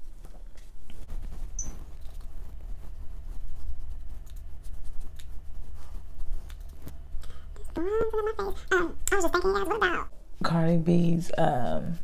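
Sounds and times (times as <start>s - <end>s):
makeup brush rubbing skin: 0.0s - 8.6s
steady low hum: 0.0s - 12.0s.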